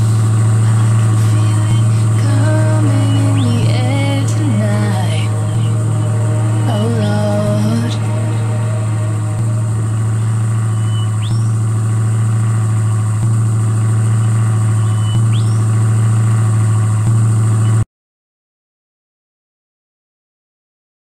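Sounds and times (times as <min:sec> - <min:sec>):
simulated car engine: 0:00.0 - 0:17.8
short rising chirps: 0:03.0 - 0:16.6.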